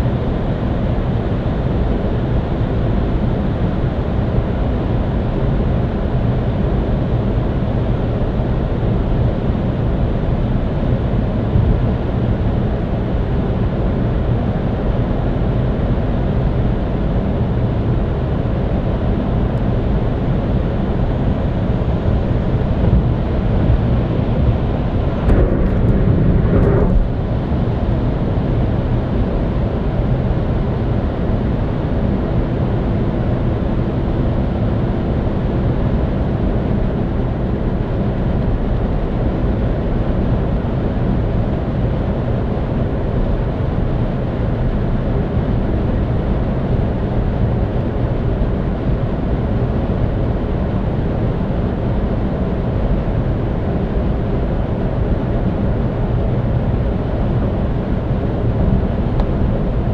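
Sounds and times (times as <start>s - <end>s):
road and tyre noise: 21.9s - 27.7s.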